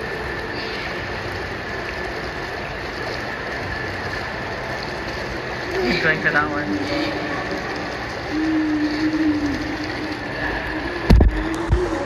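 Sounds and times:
water splashing in swimming pool: 0.0s - 12.0s.

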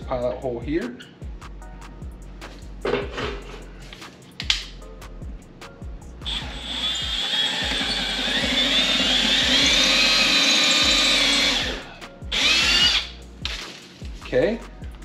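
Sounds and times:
power drill motor whine: 6.3s - 13.1s.

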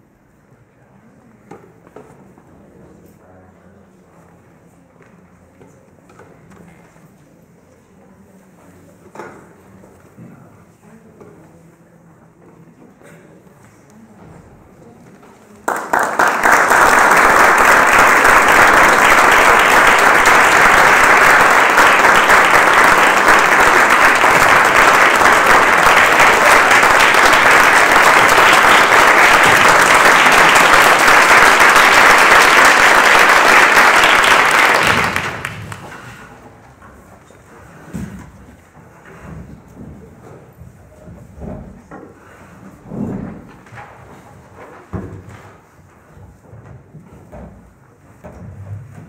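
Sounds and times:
audience applause: 15.6s - 36.2s.

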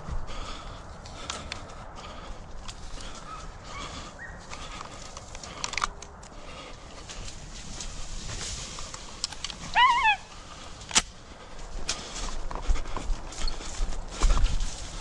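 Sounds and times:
footsteps and rustling through grass: 0.0s - 15.0s
dog yelping: 9.7s - 10.3s.

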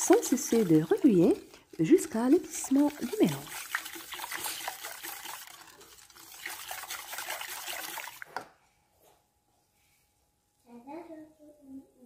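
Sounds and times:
whisk stirring liquid in pan: 0.0s - 8.3s.

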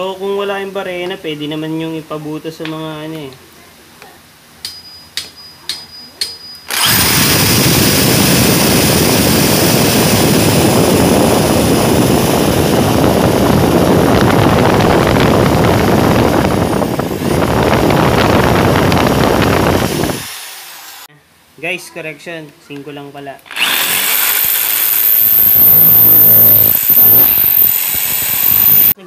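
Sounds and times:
electric drill boring through metal: 6.7s - 21.1s, 23.5s - 29.0s.

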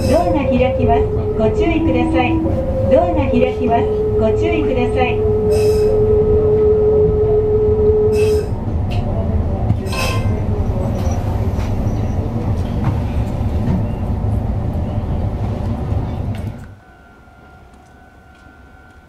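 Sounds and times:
loud held tone: 0.0s - 8.6s
train rumbling: 0.0s - 19.0s.

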